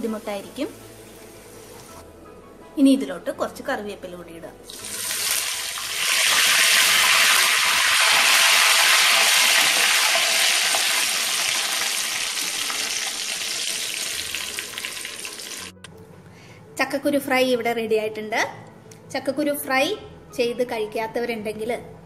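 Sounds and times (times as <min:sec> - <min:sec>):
leaves sizzling in hot oil: 0:04.7 - 0:15.8.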